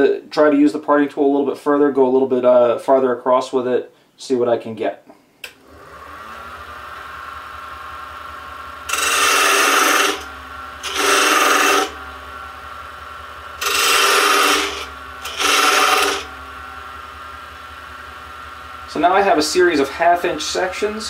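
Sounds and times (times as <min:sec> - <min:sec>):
wood lathe motor humming: 0:05.6 - 0:21.0
parting tool scraping wood: 0:08.9 - 0:12.0, 0:13.6 - 0:16.3.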